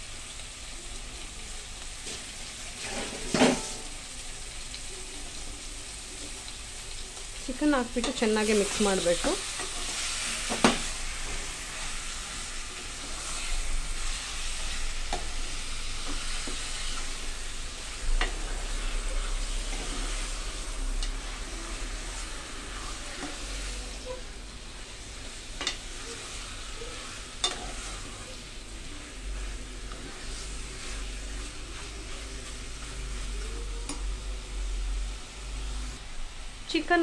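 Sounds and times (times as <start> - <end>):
chicken sizzling in oil: 0.0 - 37.0.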